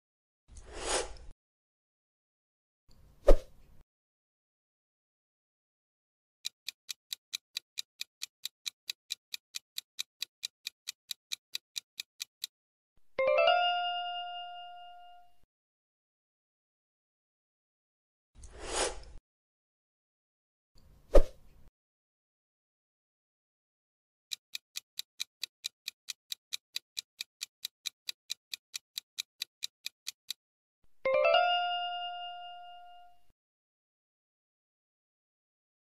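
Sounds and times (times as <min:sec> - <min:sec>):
clock-like timer ticking: 0:06.4 - 0:12.6, 0:24.3 - 0:30.4.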